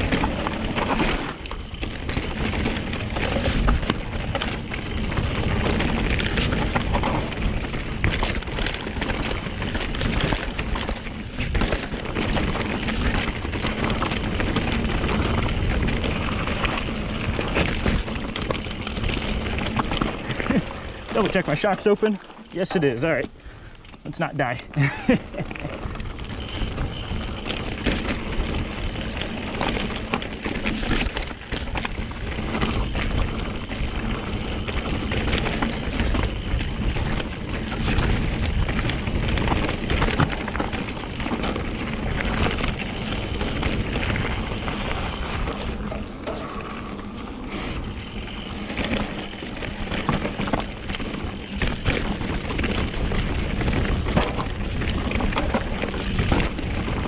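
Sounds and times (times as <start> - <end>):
bike knocks and rattles: 0.0 - 22.4, 25.0 - 47.2, 47.8 - 57.0
bike tyre noise: 0.0 - 57.0.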